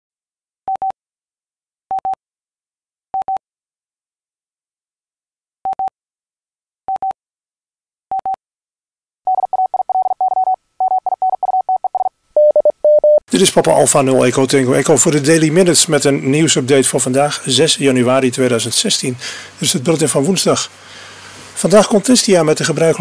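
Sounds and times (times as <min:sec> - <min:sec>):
rapid morse code beeps: 0:09.3 - 0:13.2.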